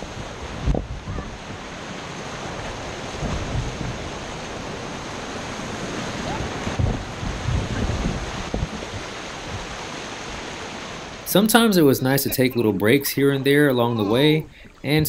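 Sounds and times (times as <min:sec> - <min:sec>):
wind buffeting microphone: 0:00.0 - 0:11.2
river water rushing: 0:00.0 - 0:15.0.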